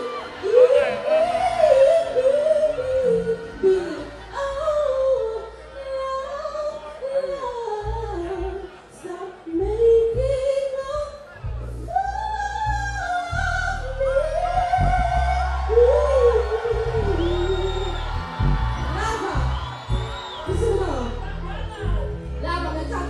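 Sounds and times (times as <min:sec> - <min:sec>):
woman singing: 0:00.0 - 0:18.1
band accompaniment with deep bass: 0:00.0 - 0:23.0.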